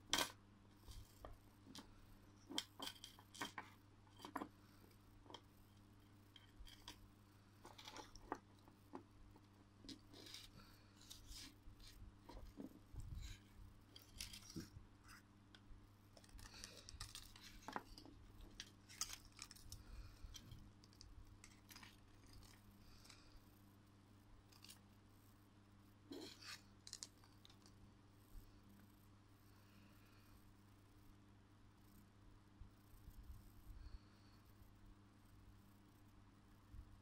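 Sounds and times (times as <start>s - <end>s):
plastic figures and chains rustling: 0.1s - 4.5s, 7.6s - 9.1s, 9.8s - 14.7s, 16.2s - 23.3s.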